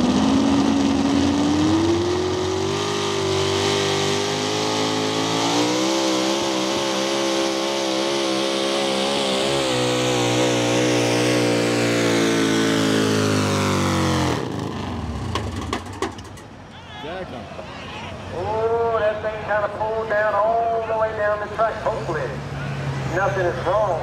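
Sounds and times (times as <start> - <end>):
truck engine revving high: 0.0 - 16.6.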